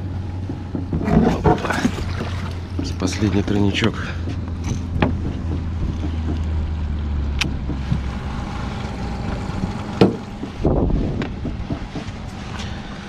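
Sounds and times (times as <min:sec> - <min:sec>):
boat motor humming: 0:00.0 - 0:13.0
wind on microphone: 0:09.4 - 0:12.0.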